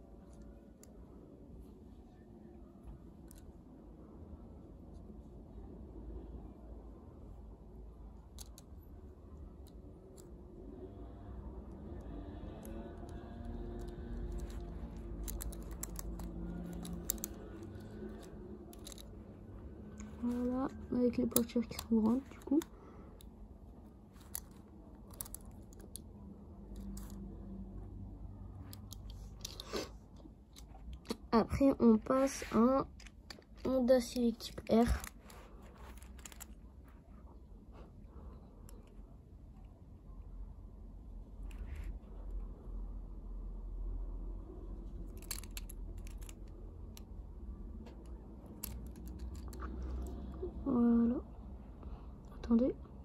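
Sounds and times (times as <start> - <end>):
low steady hum: 0.0 - 53.0
toy car clicks and taps: 12.6 - 19.1, 45.1 - 47.1, 47.8 - 49.7.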